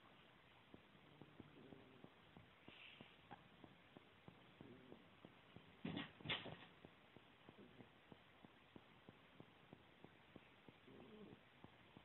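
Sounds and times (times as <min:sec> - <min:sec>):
soft ticking: 0:00.0 - 0:12.0.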